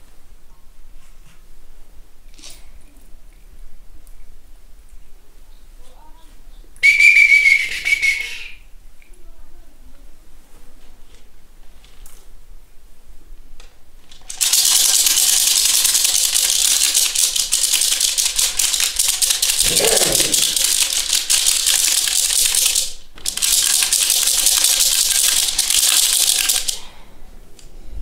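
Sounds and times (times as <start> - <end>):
beaded gourd rattle shaken: 14.0 - 26.9.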